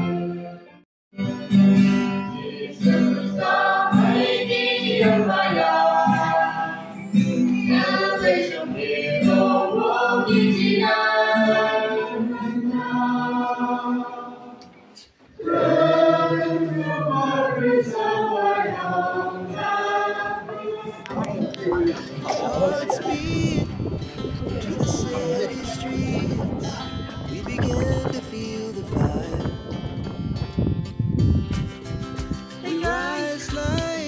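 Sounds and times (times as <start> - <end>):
choir singing a hymn: 2.0 - 14.6, 15.4 - 27.7.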